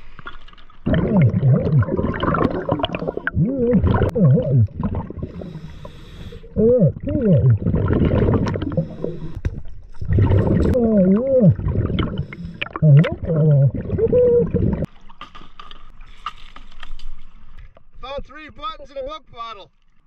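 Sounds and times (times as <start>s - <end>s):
regulator bubbling underwater: 0.8s - 14.9s.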